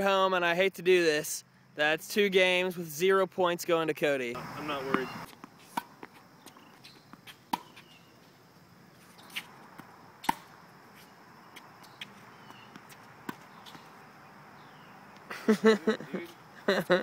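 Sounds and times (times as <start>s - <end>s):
tennis ball bouncing: 4.6s - 8.0s, 9.0s - 14.1s
tennis ball hitting racket: 4.7s - 7.9s, 9.1s - 14.0s.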